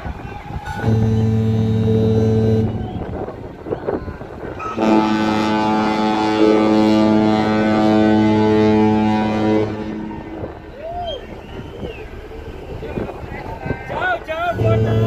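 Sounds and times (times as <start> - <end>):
ship's horn blast: 0.6 - 10.7, 14.5 - 15.0.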